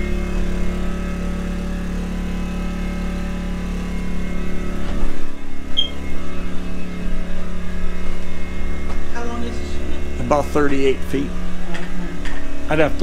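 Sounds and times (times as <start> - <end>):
generator engine droning: 0.0 - 13.0.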